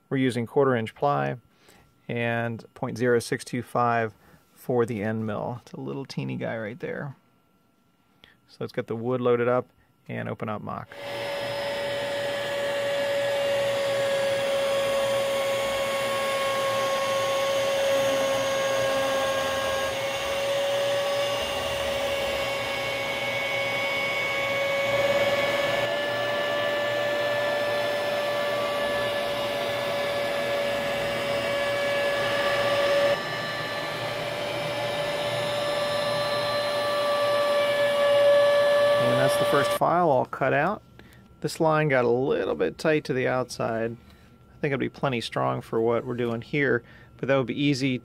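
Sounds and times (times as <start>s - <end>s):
router spindle whining: 10.9s - 39.9s.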